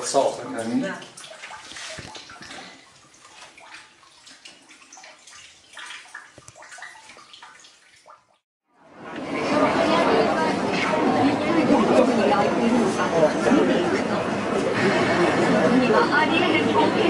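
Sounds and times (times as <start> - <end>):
brine splashing and dripping: 0.0 - 8.5.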